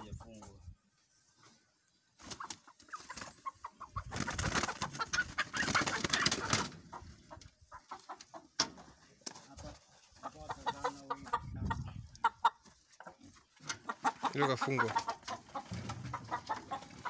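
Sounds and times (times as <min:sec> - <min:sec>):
chickens clucking and squawking: 0:00.0 - 0:17.0
flapping wings: 0:02.2 - 0:06.9.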